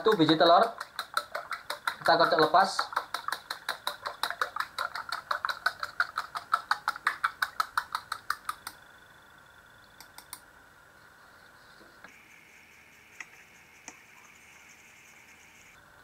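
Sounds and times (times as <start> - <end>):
fork beating egg in bowl: 0.0 - 8.8.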